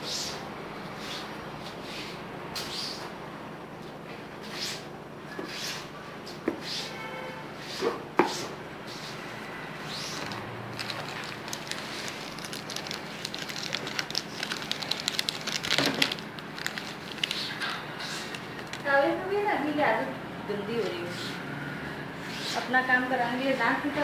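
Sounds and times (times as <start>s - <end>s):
plastic wrappers crinkling: 10.1s - 19.1s.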